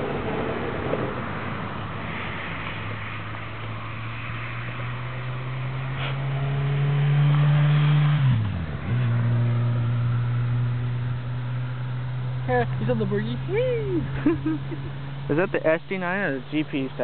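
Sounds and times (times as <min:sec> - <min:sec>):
diesel locomotive engine droning: 0:12.3 - 0:17.0.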